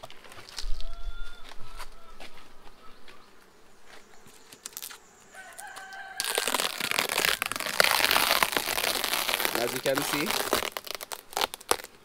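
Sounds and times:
hive cover crackling and scraping: 0.0s - 12.0s
rooster crowing: 0.7s - 3.1s, 5.3s - 6.9s.

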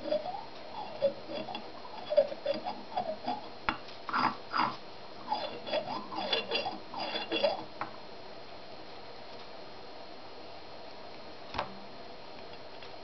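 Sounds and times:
fingers rubbing and squeaking on metal: 0.0s - 3.5s, 4.1s - 7.7s.

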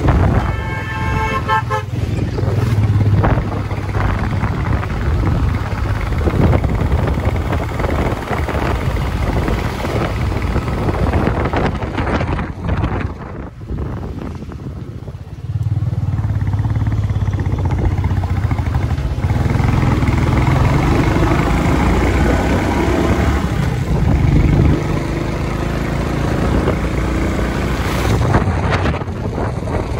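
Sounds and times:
motorcycle engine running: 0.0s - 29.9s
road and wind noise: 0.0s - 29.9s
vehicle horn honking: 0.2s - 2.1s.

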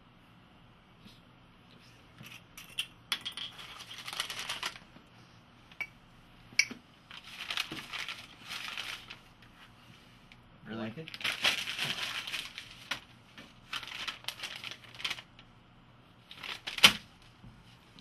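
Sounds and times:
paper rustling and crinkling: 3.5s - 5.0s, 7.1s - 9.8s, 11.0s - 15.5s, 16.2s - 17.4s.

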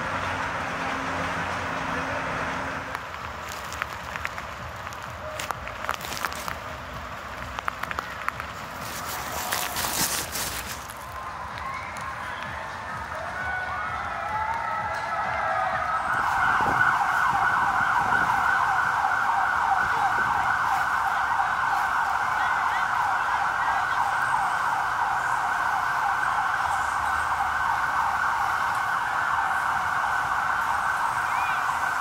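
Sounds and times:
siren yelping: 11.5s - 32.0s.

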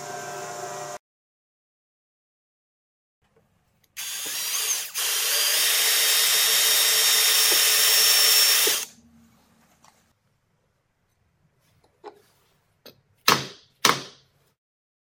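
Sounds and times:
power drill boring into wood: 4.0s - 8.9s.

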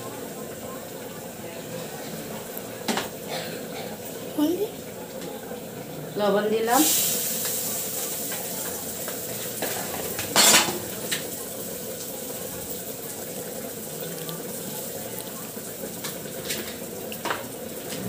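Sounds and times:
oil sizzling: 0.0s - 18.0s
utensil clattering against pan: 8.2s - 11.4s.

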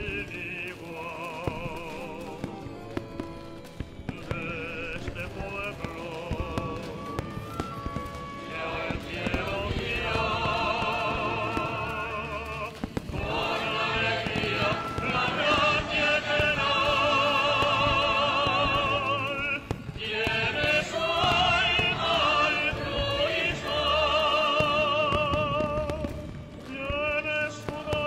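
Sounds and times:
backing music: 0.0s - 28.0s
operatic solo singing: 0.0s - 28.0s.

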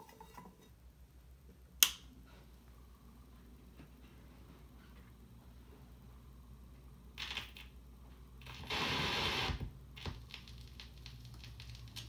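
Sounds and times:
low steady hum: 0.0s - 12.0s
stylus scraping record: 8.4s - 9.6s
scratchy needle noise: 8.4s - 11.9s.

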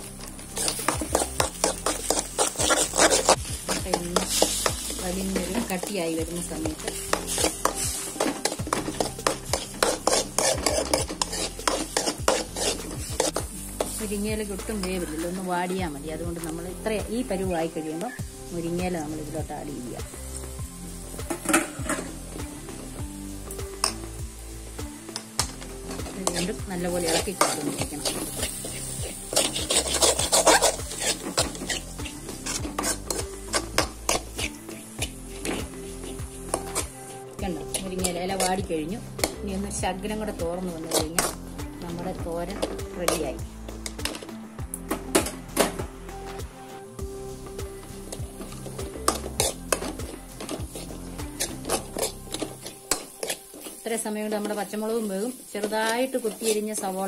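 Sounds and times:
egg sizzling in oil: 0.0s - 16.5s, 17.7s - 39.4s, 47.1s - 57.0s
spoon scraping metal pan: 0.2s - 14.1s, 25.2s - 38.6s, 40.8s - 41.4s, 42.5s - 44.3s, 48.1s - 55.0s, 55.6s - 56.8s.

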